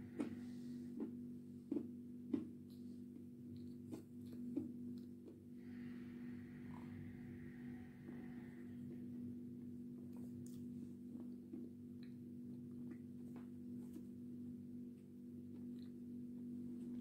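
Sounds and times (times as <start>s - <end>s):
low electrical hum: 0.0s - 17.0s
clay being chewed and smacked: 1.0s - 5.5s.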